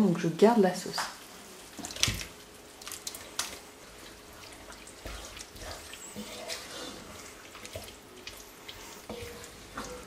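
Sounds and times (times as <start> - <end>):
wooden spoon stirring beans: 3.0 - 10.0.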